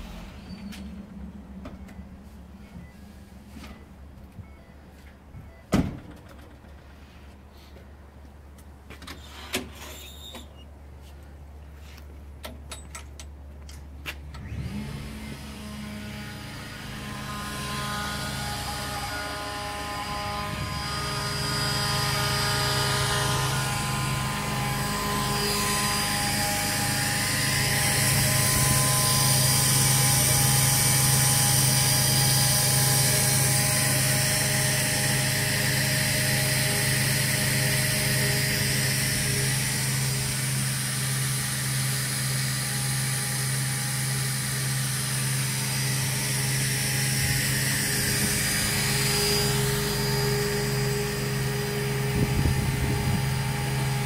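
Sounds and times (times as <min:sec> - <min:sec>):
air compressor humming: 0:14.5 - 0:54.0.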